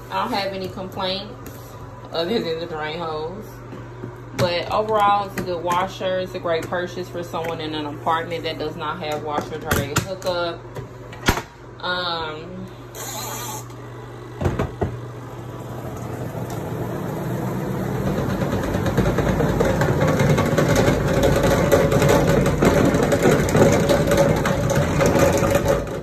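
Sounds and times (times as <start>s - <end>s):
washing machine motor humming: 0.0s - 26.0s.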